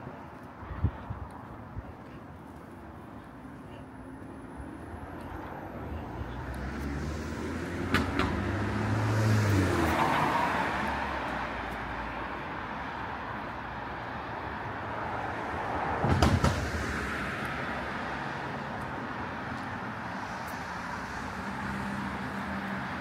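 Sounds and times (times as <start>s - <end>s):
traffic background: 0.0s - 23.0s
car passing by: 5.4s - 13.0s.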